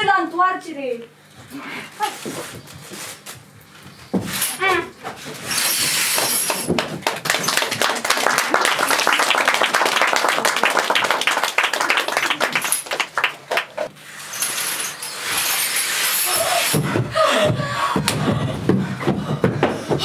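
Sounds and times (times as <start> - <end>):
audience applauding: 6.5 - 13.9.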